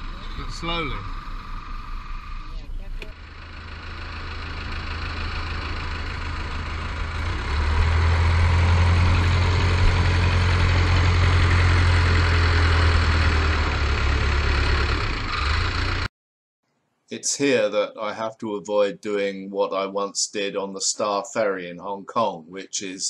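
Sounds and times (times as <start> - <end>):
boat engine humming: 0.0 - 16.1.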